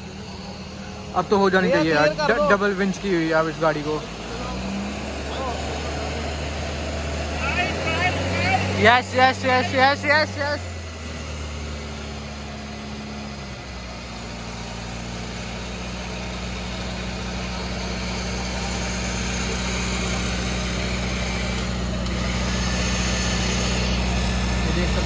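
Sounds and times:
engine running at low revs: 0.0 - 25.0.

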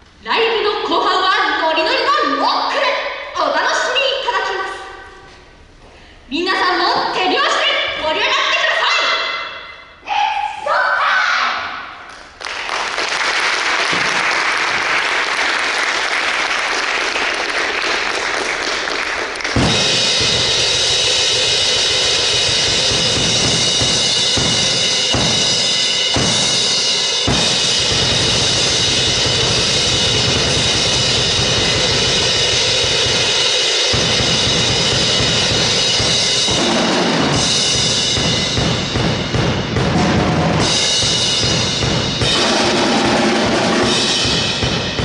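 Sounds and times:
audience applauding: 12.1 - 19.8
drum kit playing: 13.9 - 45.0.

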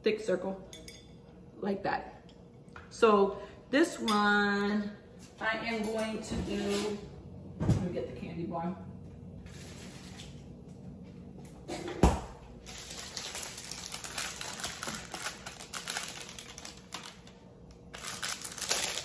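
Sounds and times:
candy wrapper crinkling: 12.6 - 19.0.

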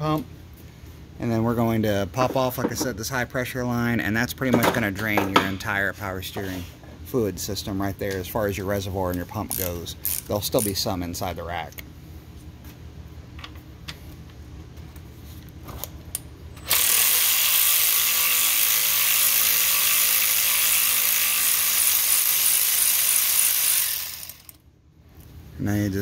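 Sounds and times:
power ratchet running: 16.6 - 24.6.

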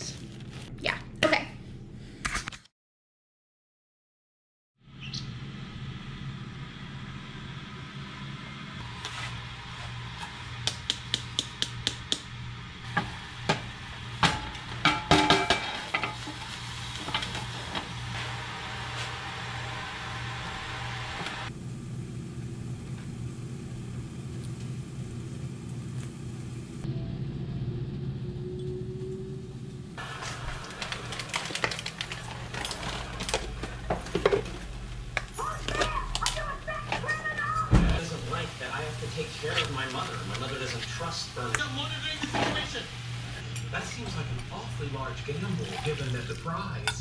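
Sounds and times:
food sauteing in a pan: 12.3 - 21.5, 38.1 - 43.5.

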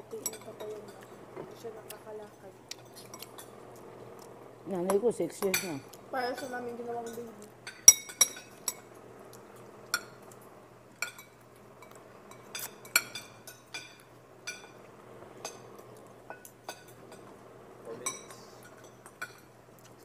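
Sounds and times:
forks clinking against pot: 4.9 - 5.8, 6.4 - 8.9, 11.0 - 14.8, 18.0 - 19.5.

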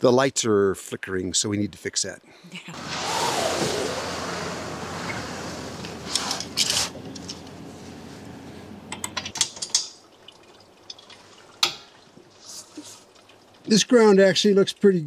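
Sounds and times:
rushing noise: 2.7 - 8.7
metallic clicks and rattles: 6.1 - 7.6, 8.9 - 10.0.

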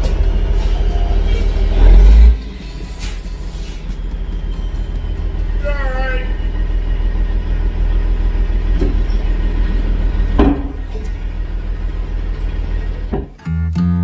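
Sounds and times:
tractor engine running: 0.0 - 14.0
acoustic guitar music: 13.3 - 14.0.

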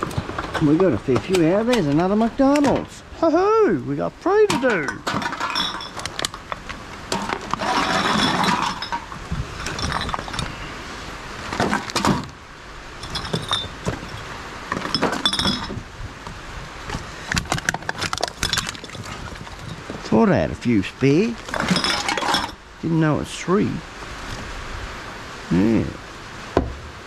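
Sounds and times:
bottles and cans clinking: 4.5 - 10.6, 13.0 - 15.8, 17.3 - 20.1, 21.5 - 22.6
plastic bag and cardboard rustling: 16.8 - 20.1.

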